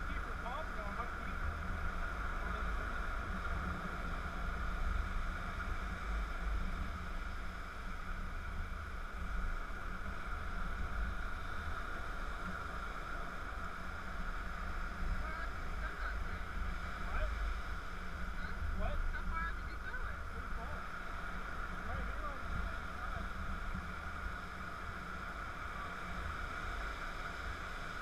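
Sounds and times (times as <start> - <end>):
low uneven rumble: 0.0 - 28.0
ocean surf breaking: 10.1 - 28.0.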